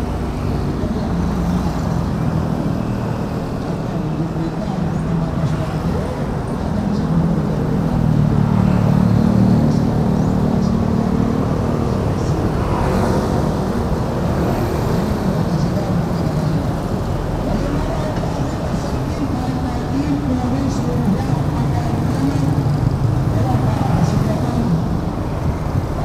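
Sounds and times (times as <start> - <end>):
scooters and cars passing: 0.0 - 26.0.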